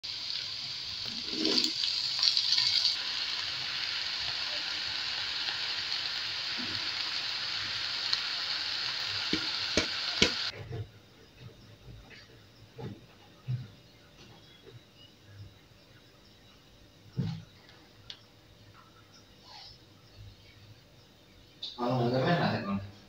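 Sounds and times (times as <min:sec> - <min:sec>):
food sizzling in a wok: 0:00.0 - 0:10.6.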